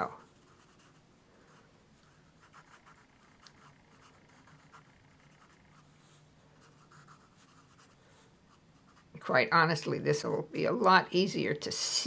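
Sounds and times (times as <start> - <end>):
pencil scratching on paper: 0.0 - 9.4.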